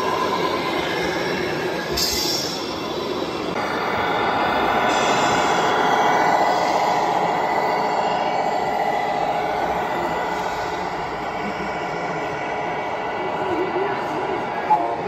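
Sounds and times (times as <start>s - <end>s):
crowd murmur: 3.5s - 15.0s.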